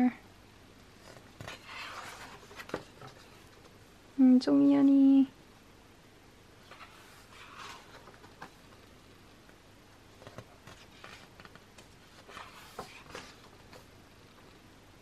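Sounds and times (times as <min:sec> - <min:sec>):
page turning: 0:01.0 - 0:03.7, 0:06.6 - 0:08.9, 0:10.2 - 0:13.9
book pages rustling: 0:01.0 - 0:03.8, 0:06.6 - 0:08.9, 0:10.1 - 0:14.0.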